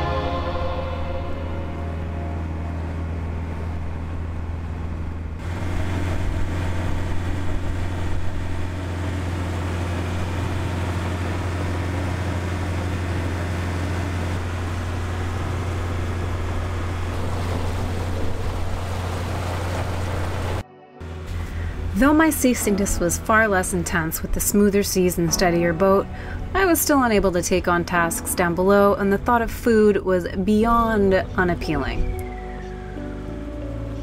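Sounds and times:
low rumble: 0.0 - 34.0
water rushing past hull: 3.0 - 20.6.

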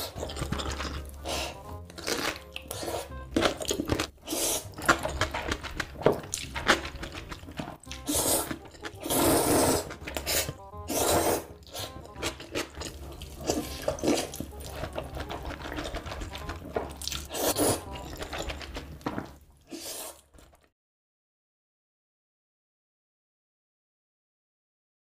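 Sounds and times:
person slurping noodles: 0.0 - 18.5, 19.6 - 20.6
chewing: 0.0 - 20.7.

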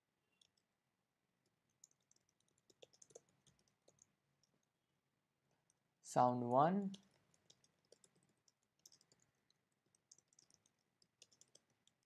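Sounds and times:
faint keyboard typing: 0.3 - 0.7, 1.4 - 4.8, 6.8 - 12.0.

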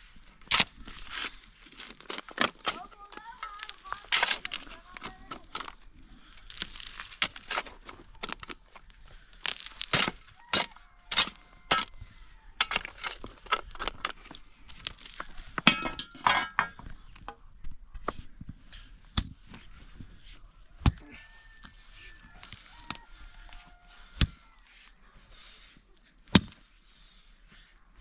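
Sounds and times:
pickaxe chopping stony soil: 0.4 - 2.8, 3.4 - 5.8, 6.5 - 8.6, 9.4 - 12.0, 12.6 - 16.8, 20.8 - 21.0, 24.1 - 24.4, 26.3 - 26.6
stones clinking: 14.8 - 16.9.

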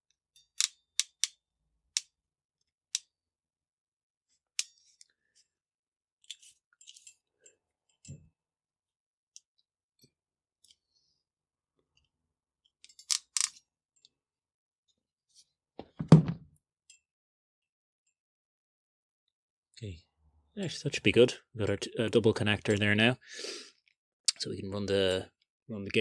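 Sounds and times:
thump: 15.9 - 16.4.

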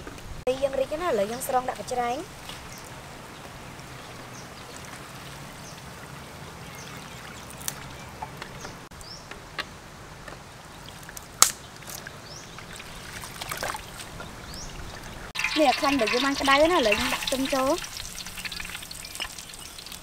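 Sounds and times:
water dripping and trickling: 2.3 - 8.9, 10.8 - 20.0
high bird chirps: 14.4 - 20.0.

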